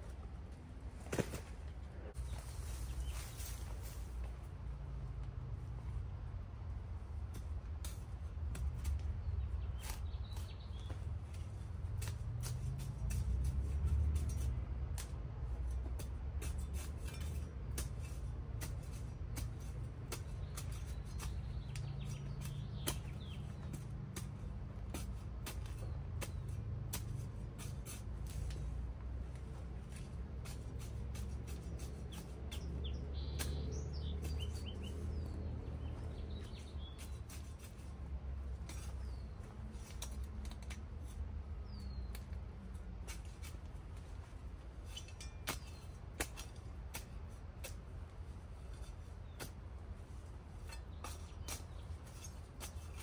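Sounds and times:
birds chirping: 8.8 - 11.1, 20.1 - 23.9, 31.5 - 37.9, 38.6 - 40.0, 41.0 - 42.4.

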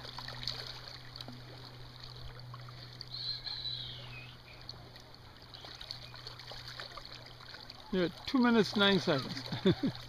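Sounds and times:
river water flowing around legs: 0.0 - 10.0
high falling whistle: 3.1 - 4.4.

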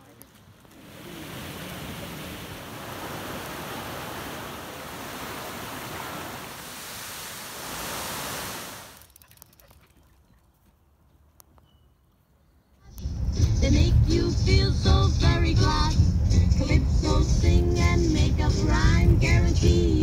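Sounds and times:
waterfall rushing: 0.7 - 9.0.

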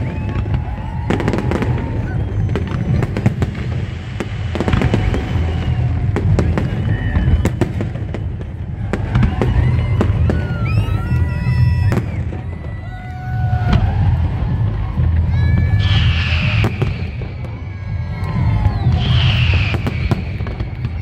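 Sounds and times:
hissing crackle: 0.0 - 8.9
firework bangs and cracks: 0.0 - 21.0.

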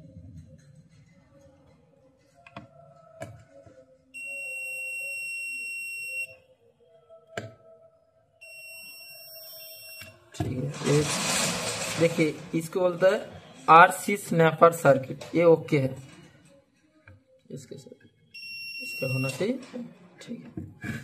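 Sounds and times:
multimeter continuity beep: 4.2 - 6.3, 8.4 - 10.2, 18.4 - 19.4.

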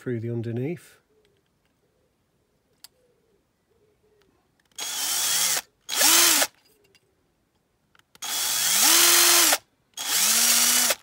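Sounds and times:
electric drill bursts: 4.8 - 6.5, 8.2 - 11.0.

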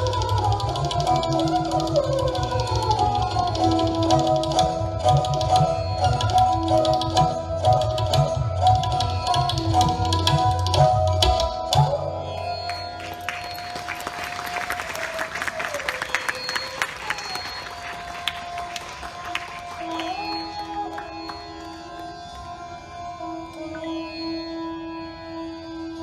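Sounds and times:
bowed string melody: 0.0 - 13.6, 17.2 - 26.0
tabla drumming: 0.0 - 22.2
audience applause: 12.6 - 22.4.

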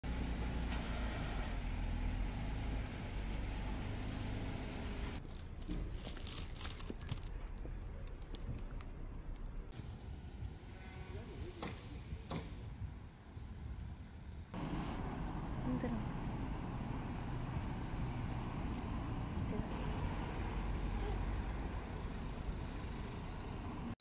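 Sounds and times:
light clicks and rustles of bags: 5.2 - 9.6.

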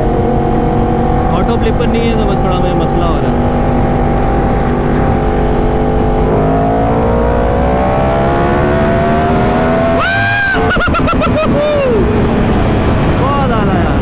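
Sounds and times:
motorcycle engine accelerating: 0.0 - 14.0.

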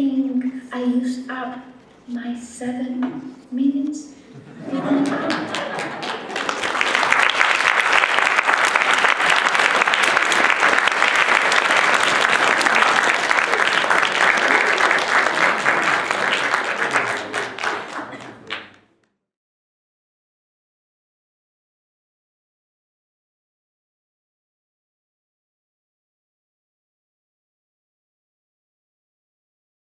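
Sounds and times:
audience clapping: 4.6 - 19.0.

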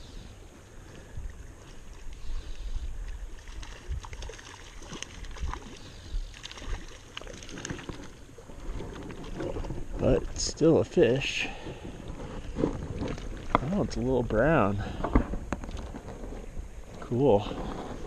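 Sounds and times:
wind rumble on microphone: 0.0 - 18.0
water splashing in a stream: 0.7 - 14.8.

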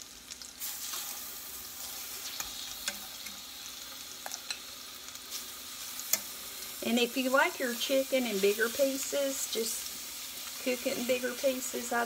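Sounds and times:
chicken sizzling in a skillet: 0.0 - 12.0.

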